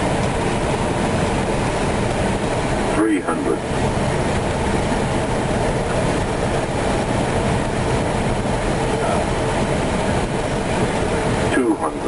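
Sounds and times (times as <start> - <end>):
cockpit airflow and engine noise: 0.0 - 12.0.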